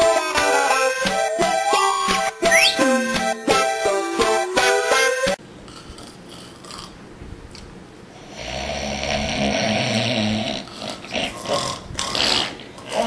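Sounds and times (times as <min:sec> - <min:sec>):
person snoring: 0:08.2 - 0:13.0
short snorts: 0:08.3 - 0:13.0.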